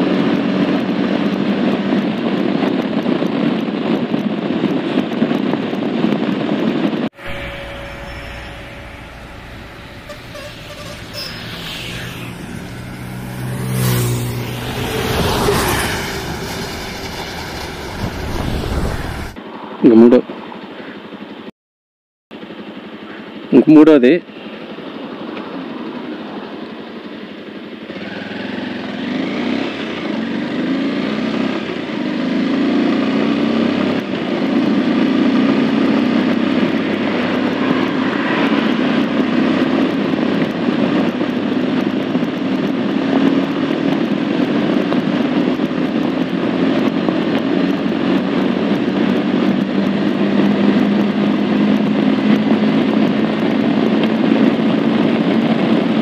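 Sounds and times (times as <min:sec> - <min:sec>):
motorcycle engine accelerating: 0:07.1 - 0:19.4, 0:25.5 - 0:56.0.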